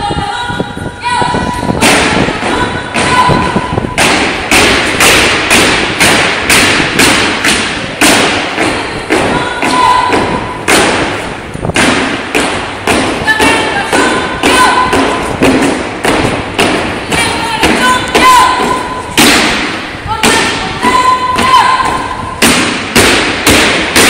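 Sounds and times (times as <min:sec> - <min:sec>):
boots stamping in unison: 0:01.8 - 0:24.0.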